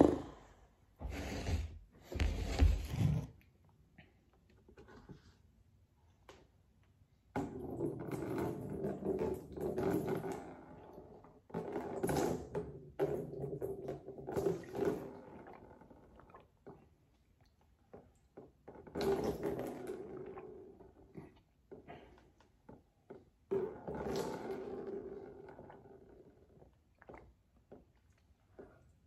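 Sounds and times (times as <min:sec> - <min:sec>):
liquid spilling into plastic tub: 0:17.9 - 0:20.5.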